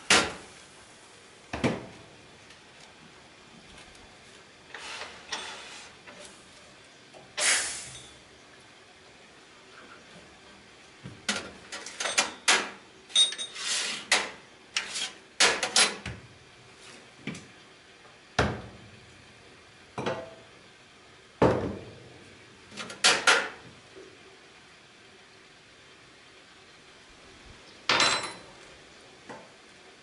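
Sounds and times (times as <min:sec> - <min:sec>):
cups and metal parts clinking: 0:11.7 - 0:16.0, 0:27.9 - 0:28.5.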